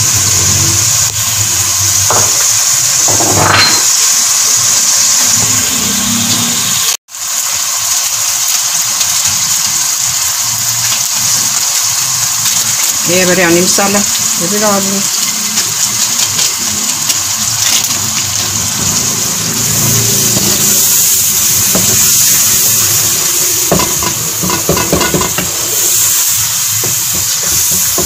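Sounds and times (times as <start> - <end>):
sauce sizzling in a metal pot: 0.0 - 28.0
spoon knocking: 23.7 - 25.8.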